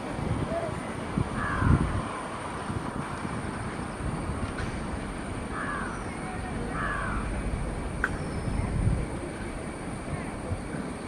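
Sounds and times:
train rumbling on rails: 0.0 - 11.0
crow cawing: 1.4 - 1.8, 5.5 - 6.1, 6.7 - 7.4.

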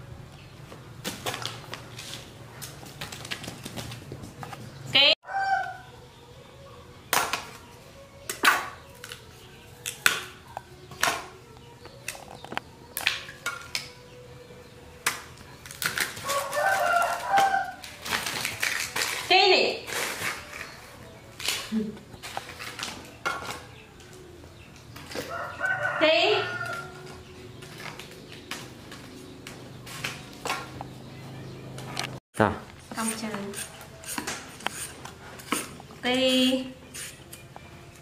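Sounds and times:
rooster crowing: 5.2 - 6.0, 16.2 - 17.8, 25.2 - 27.2.

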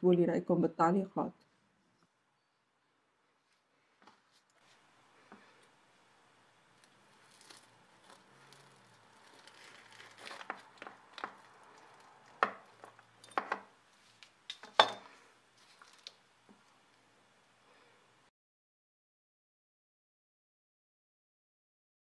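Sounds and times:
pastry crackling: 5.4 - 17.0
knife crunching through pastry: 6.7 - 13.2.

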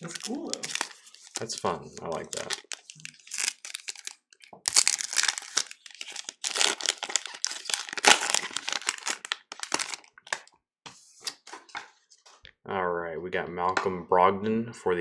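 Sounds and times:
foil wrapper crinkling: 0.0 - 10.5.

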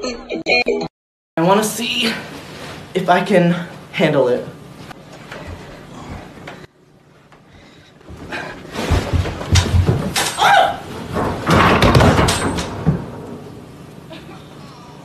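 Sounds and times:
clatter of bangs and thumps: 8.1 - 13.5
short cry: 10.4 - 10.9.

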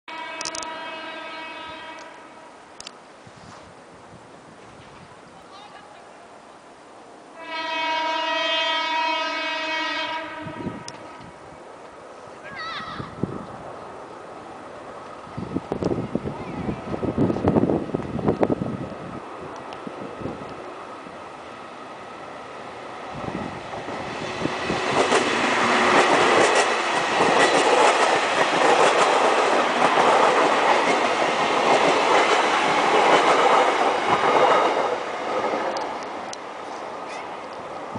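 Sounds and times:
electric train horn blast: 0.1 - 2.6, 7.3 - 11.3
electric train passing: 0.1 - 37.9.

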